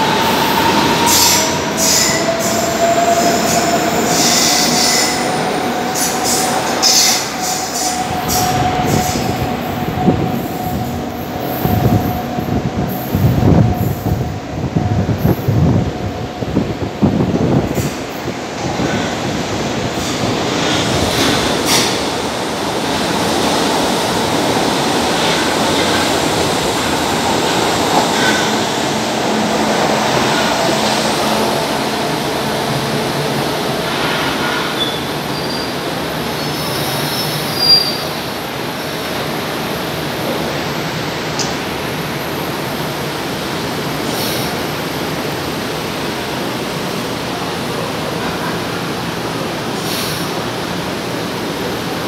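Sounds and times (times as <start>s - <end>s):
train wheels rumbling on rails: 0.0s - 52.0s.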